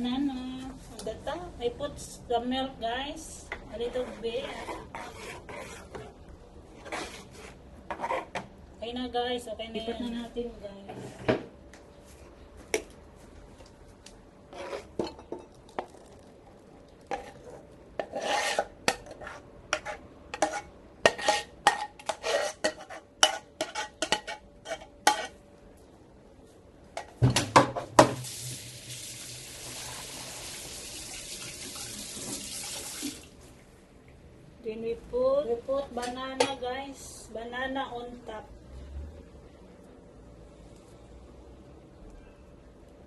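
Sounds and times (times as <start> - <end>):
spoon scraping a cooking pot: 3.6 - 6.2, 6.8 - 8.4, 14.5 - 15.1, 17.1 - 25.4.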